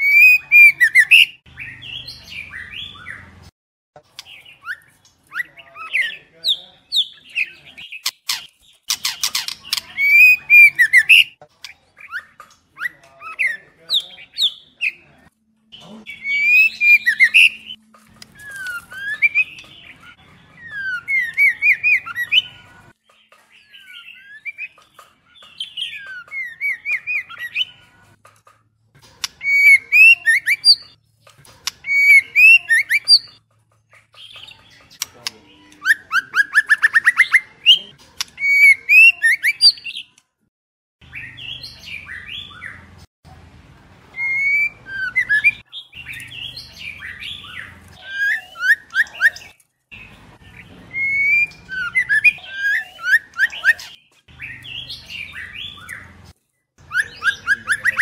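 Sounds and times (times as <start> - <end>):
bird singing whistled notes: 50.5 - 56.0.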